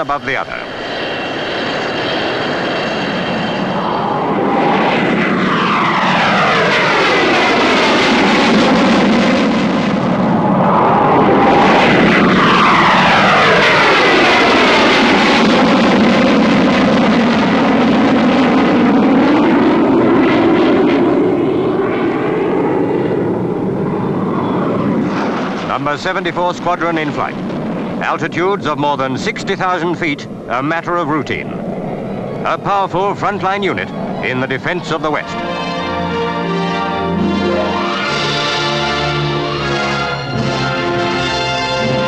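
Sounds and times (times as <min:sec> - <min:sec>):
jet fighters roaring past: 0:00.0 - 0:42.0.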